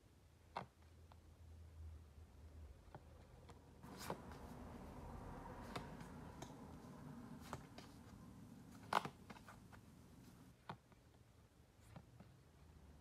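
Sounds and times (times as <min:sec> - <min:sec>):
photo cards flipping: 0:03.8 - 0:11.1.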